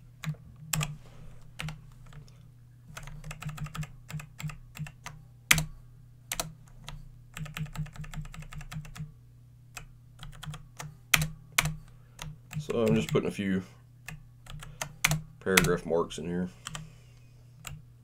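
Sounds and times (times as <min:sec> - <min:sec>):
low steady hum: 0:00.0 - 0:18.0
computer keyboard typing: 0:00.2 - 0:01.0, 0:01.6 - 0:02.3, 0:02.9 - 0:05.7, 0:06.3 - 0:09.1, 0:09.8 - 0:13.3, 0:14.1 - 0:15.8, 0:16.6 - 0:16.8.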